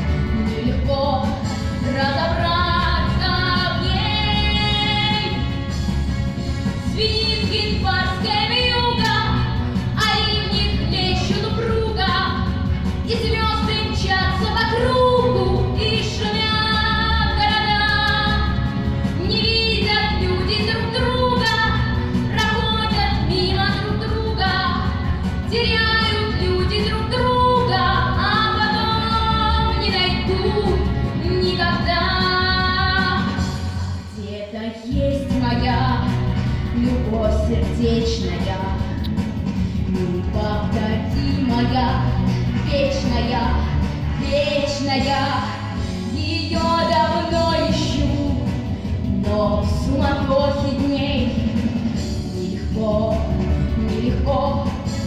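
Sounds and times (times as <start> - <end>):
girl singing into microphone: 0.6 - 5.4, 7.0 - 18.6, 19.2 - 38.7, 42.6 - 48.5, 49.2 - 55.0.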